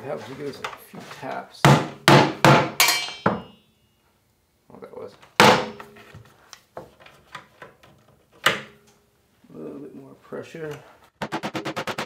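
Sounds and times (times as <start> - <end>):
mallet heavy thuds on wood: 1.7 - 3.5, 5.4 - 5.8.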